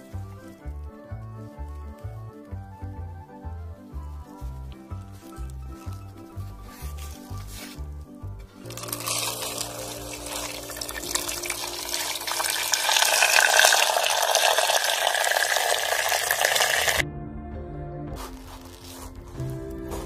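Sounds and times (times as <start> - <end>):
water pouring into a pot: 8.6 - 17.0.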